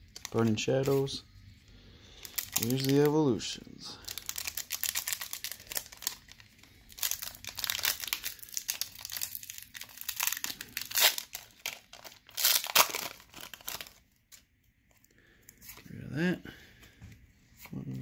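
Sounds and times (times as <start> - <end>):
plastic foil wrapper crinkling: 2.1 - 3.2, 4.0 - 14.4
loud wrapper rips: 2.2 - 3.1, 4.0 - 14.0.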